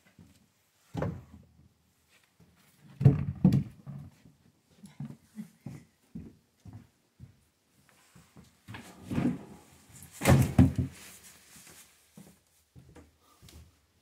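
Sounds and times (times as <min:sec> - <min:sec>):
wooden knocks and clunks of firewood: 0:02.9 - 0:03.8, 0:10.2 - 0:11.0
rustling: 0:07.9 - 0:12.6.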